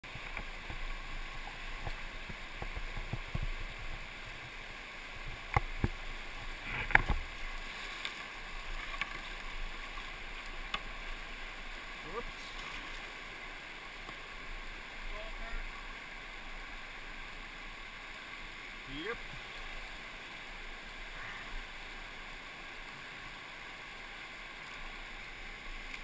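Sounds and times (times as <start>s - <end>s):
rushing whitewater: 0.0s - 26.0s.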